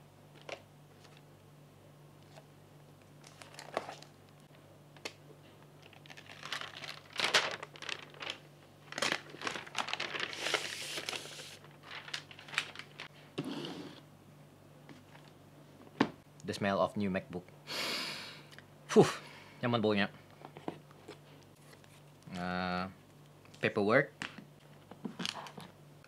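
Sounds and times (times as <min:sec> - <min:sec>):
plastic wrap crinkling: 0:03.2 - 0:04.5, 0:05.8 - 0:13.2.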